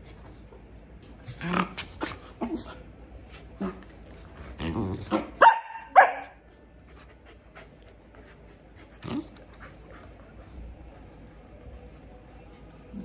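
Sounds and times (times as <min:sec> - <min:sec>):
high-pitched dog barks: 0:05.1 - 0:06.4
dog grumbling: 0:09.0 - 0:09.6.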